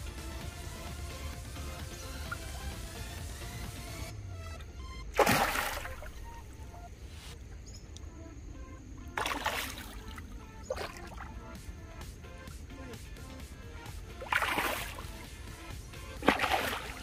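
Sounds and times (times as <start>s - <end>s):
fish splashing in water: 5.2s - 6.7s, 9.1s - 11.4s, 14.2s - 15.4s, 16.2s - 17.0s.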